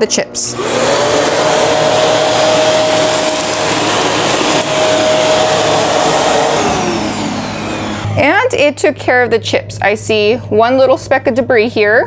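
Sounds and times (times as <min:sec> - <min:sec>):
vacuum cleaner running: 0:00.3 - 0:08.9.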